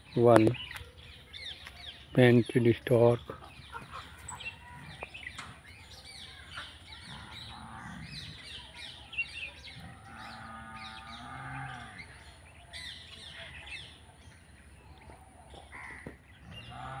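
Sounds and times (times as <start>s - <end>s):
birds chirping and calling: 0.0s - 17.0s.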